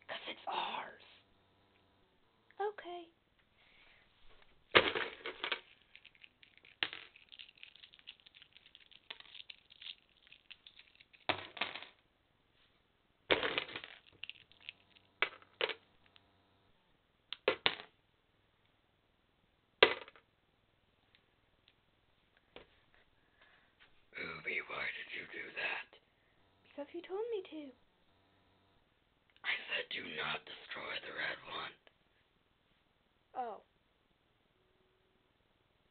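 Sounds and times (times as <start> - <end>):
plastic toy pieces clattering: 4.8 - 12.0, 13.3 - 15.8.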